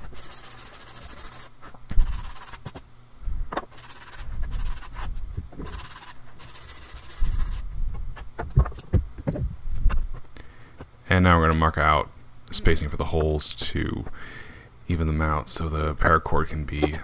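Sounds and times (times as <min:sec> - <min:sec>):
sandpaper rasping on wood: 0:00.0 - 0:02.7, 0:03.8 - 0:05.0, 0:05.7 - 0:07.6.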